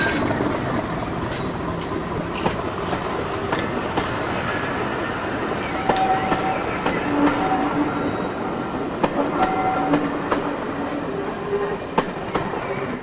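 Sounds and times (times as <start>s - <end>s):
wheel squeal: 0.0s - 2.6s
train wheels clicking over joints: 0.0s - 13.0s.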